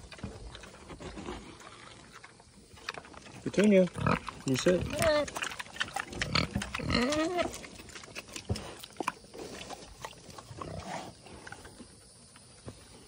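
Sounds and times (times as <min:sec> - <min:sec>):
pig calling: 0:03.6 - 0:08.8.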